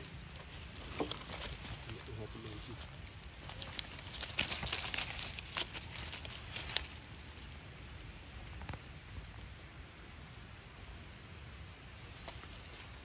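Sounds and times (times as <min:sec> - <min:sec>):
dry leaves crackling and rustling: 0:00.0 - 0:08.0
faint outdoor background: 0:00.0 - 0:13.0
high insect whine: 0:00.0 - 0:13.0.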